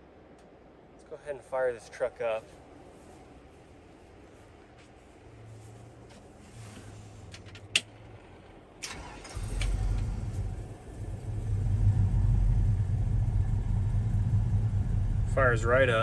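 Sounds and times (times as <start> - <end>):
engine idling: 8.0 - 16.0
ignition click: 8.8 - 10.2
engine cranking: 8.8 - 11.6.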